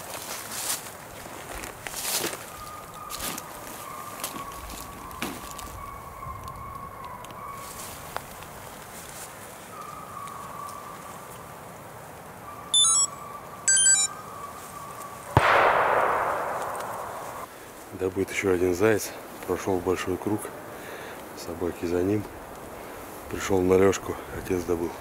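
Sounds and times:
short high chirps: 12.7s - 14.2s
shotgun shot echoing: 15.4s - 17.5s.

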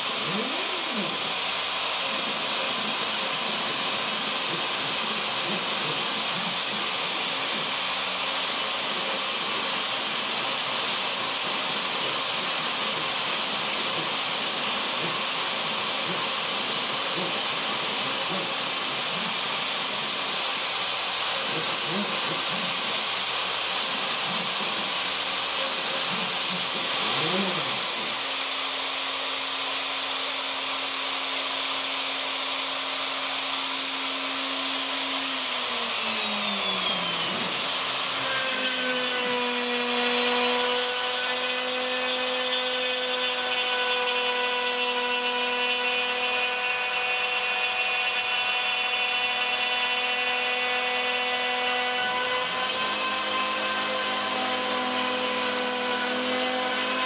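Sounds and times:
wood router whining: 0.0s - 57.0s.

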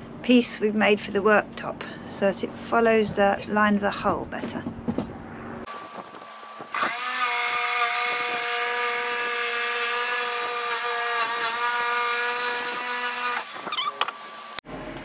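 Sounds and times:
power saw cutting wood: 5.7s - 14.6s.

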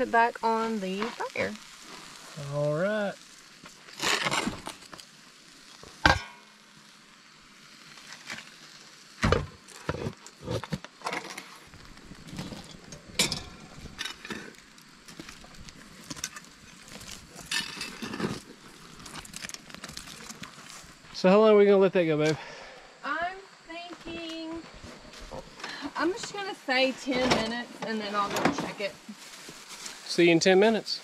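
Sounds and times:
fire crackling and popping: 0.0s - 31.0s
metal pot clanking and scraping: 12.6s - 14.6s, 17.4s - 18.4s.

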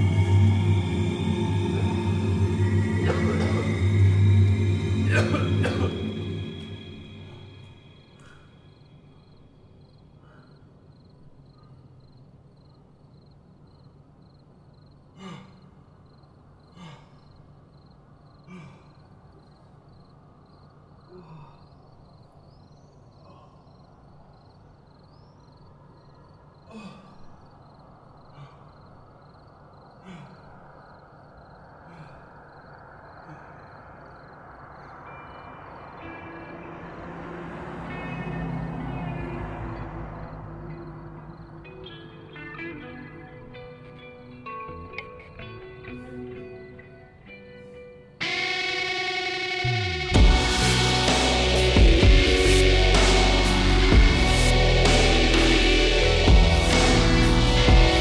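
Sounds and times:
person sighing and sobbing: 21.1s - 21.7s, 26.7s - 27.3s.

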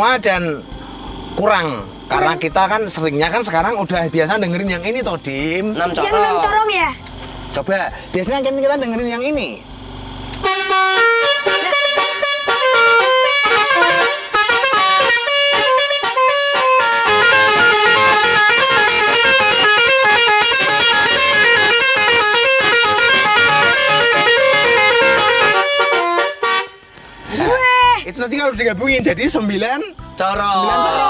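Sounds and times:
car horn playing fast tune: 10.4s - 27.7s.

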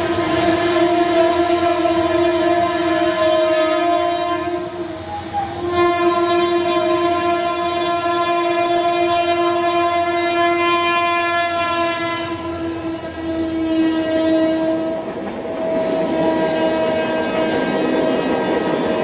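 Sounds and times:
horn long steady note: 0.0s - 19.0s
rushing noise: 14.8s - 19.0s.

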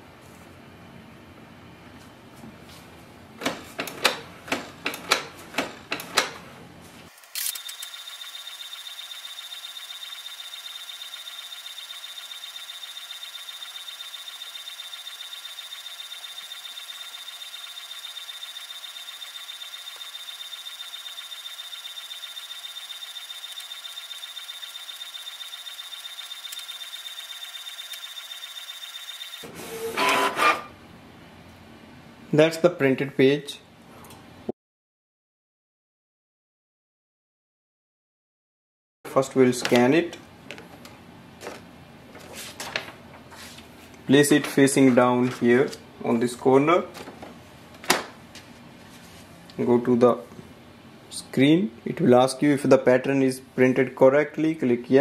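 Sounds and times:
printer mechanical clicks: 3.4s - 6.4s
printer high-pitched whine: 7.4s - 30.7s.

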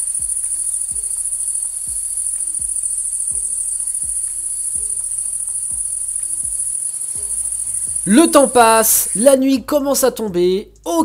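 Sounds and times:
insect chirring: 0.0s - 9.4s
soft music with low beat: 0.0s - 11.0s.

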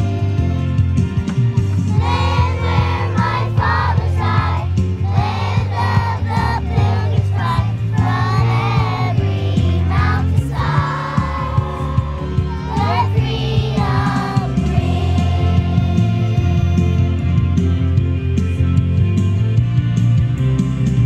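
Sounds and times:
bass line: 0.0s - 21.0s.

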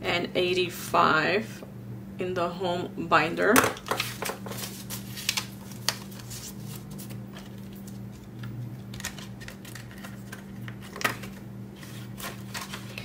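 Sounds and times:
steady low hum: 0.0s - 13.0s
banknotes rustling: 3.8s - 13.0s.

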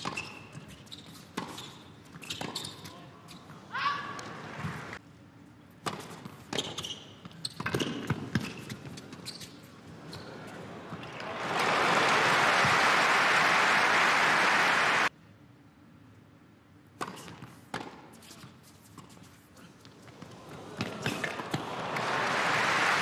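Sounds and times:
crowd applauding: 11.1s - 15.1s, 21.3s - 23.0s.

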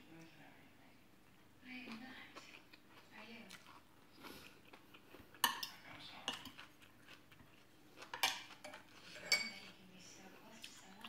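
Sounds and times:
cutlery clinking on glass dishes: 5.4s - 6.6s, 8.1s - 9.7s.

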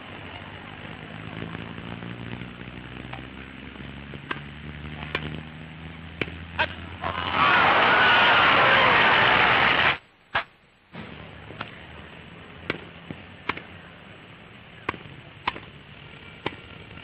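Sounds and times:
rackets striking tennis ball: 4.1s - 5.4s, 6.1s - 6.4s, 12.6s - 13.8s, 14.8s - 16.8s
crowd applauding: 7.2s - 10.0s.

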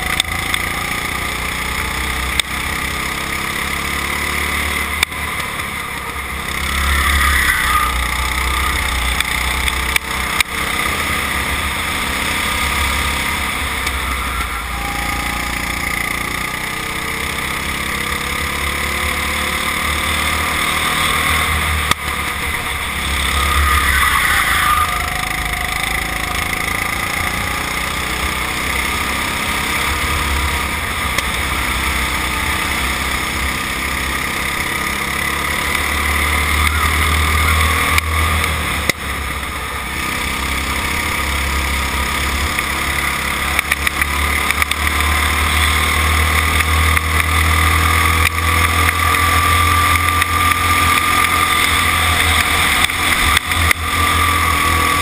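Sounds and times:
go-kart engine racing: 0.0s - 55.0s.

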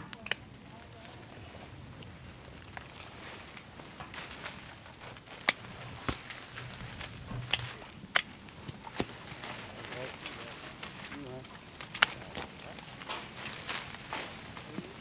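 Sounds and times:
sharp snaps: 0.0s - 0.5s, 7.4s - 15.0s
leaves and branches rustling: 0.0s - 15.0s.

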